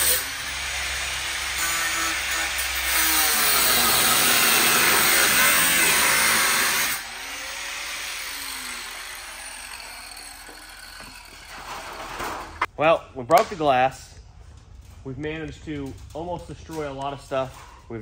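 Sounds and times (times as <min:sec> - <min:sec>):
angle grinder cutting metal: 0:00.0 - 0:12.6.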